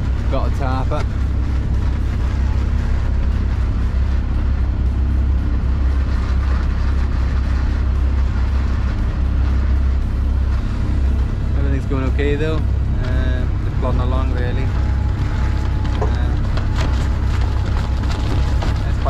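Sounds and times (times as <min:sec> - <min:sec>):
boat engine droning: 0:00.0 - 0:19.0.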